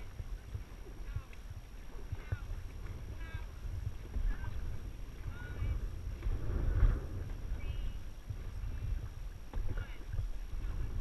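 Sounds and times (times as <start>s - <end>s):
paddles splashing in unison: 0.0s - 11.0s
wind rumble on microphone: 0.0s - 11.0s.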